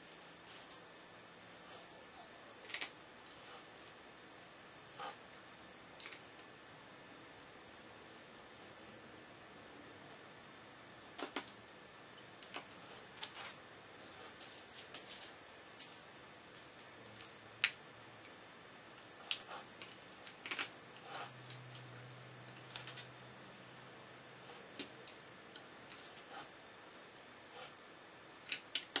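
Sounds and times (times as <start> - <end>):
plastic bricks clicking together: 28.4 - 29.0.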